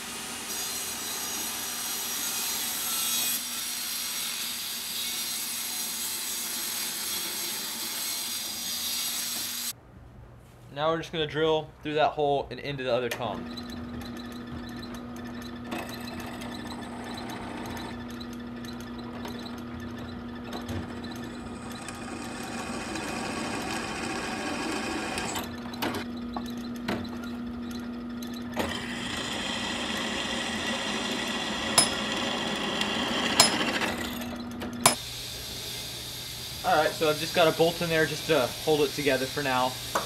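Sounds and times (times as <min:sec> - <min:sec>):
drill press cutting steel: 0:20.9 - 0:25.8, 0:28.5 - 0:40.0.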